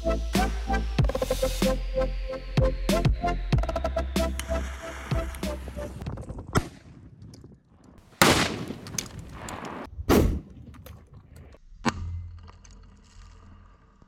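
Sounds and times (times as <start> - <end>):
loud explosion blasts: 8.2 - 10.6.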